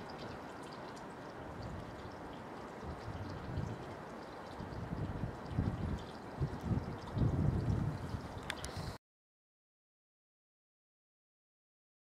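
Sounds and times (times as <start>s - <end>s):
outdoor background hiss: 0.0s - 9.0s
small high ticks: 8.4s - 8.9s.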